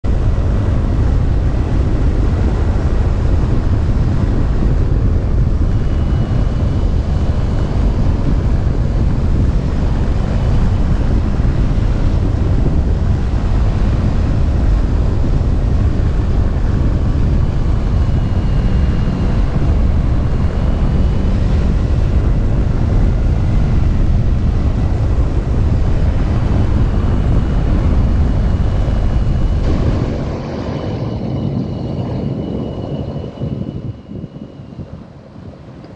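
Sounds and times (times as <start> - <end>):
wind rushing over microphone: 0.0 - 35.9.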